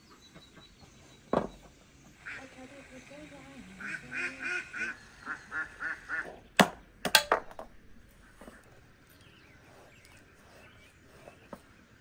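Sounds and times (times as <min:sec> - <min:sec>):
ducks quacking: 0:02.2 - 0:02.8, 0:03.7 - 0:06.4.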